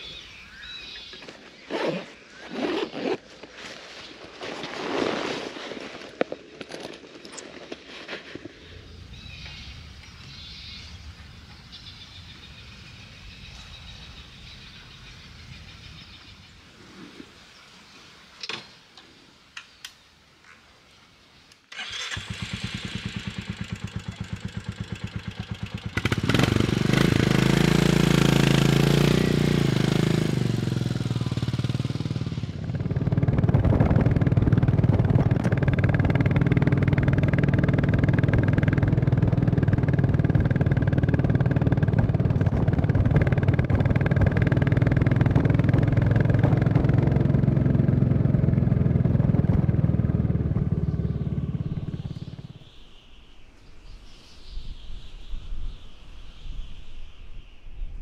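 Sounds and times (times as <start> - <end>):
motorcycle engine starting and revving: 21.7 - 52.8.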